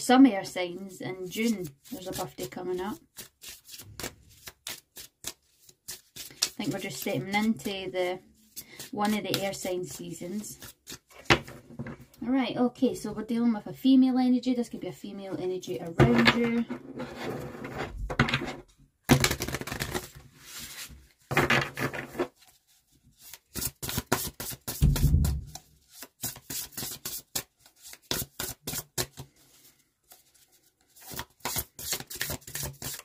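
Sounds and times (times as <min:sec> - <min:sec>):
cards rustling while shuffled: 0:01.2 - 0:11.3, 0:19.2 - 0:21.0, 0:21.8 - 0:33.0
quick card slaps: 0:23.8 - 0:27.5
low thump: 0:24.8 - 0:25.6.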